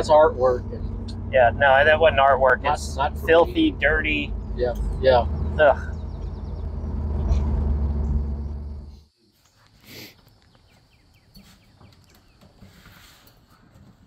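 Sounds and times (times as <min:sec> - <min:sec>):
car engine droning: 0:00.0 - 0:09.0.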